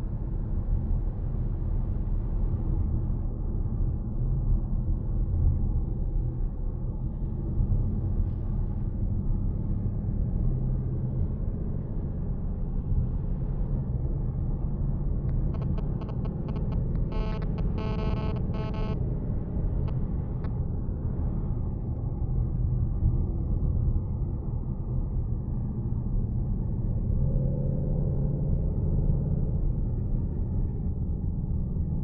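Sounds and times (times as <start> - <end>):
car engine and road noise: 12.2 - 21.2.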